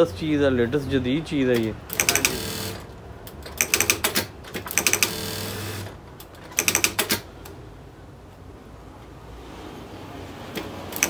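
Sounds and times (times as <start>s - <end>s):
sewing machine needle clatter: 2.0s - 2.8s, 3.5s - 7.2s.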